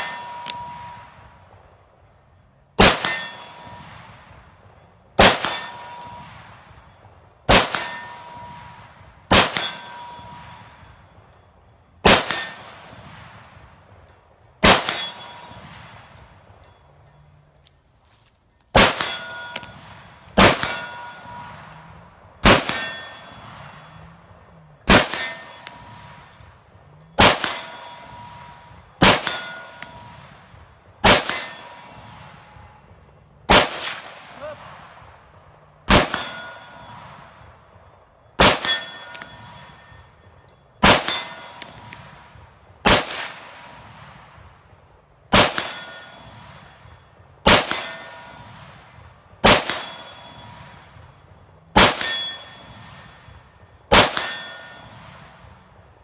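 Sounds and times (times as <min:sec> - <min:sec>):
ringing tone after shots: 0:00.0 - 0:17.8, 0:18.8 - 0:56.0
rifle gunshots: 0:02.8 - 0:04.4, 0:05.2 - 0:06.6, 0:07.5 - 0:10.9, 0:12.0 - 0:13.6, 0:14.6 - 0:16.2, 0:18.7 - 0:24.2, 0:24.8 - 0:26.4, 0:27.2 - 0:32.6, 0:33.5 - 0:35.2, 0:35.8 - 0:37.4, 0:38.4 - 0:39.9, 0:40.8 - 0:44.4, 0:45.3 - 0:51.0, 0:51.7 - 0:53.2, 0:53.9 - 0:55.4.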